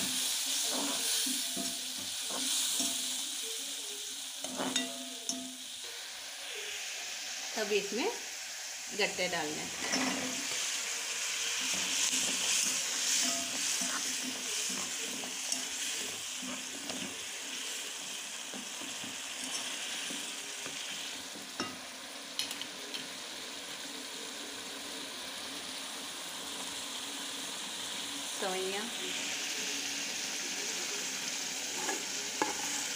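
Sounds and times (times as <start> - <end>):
gravy sizzling in pan: 0.0 - 32.9
spoon clicking against pan: 22.4 - 23.1.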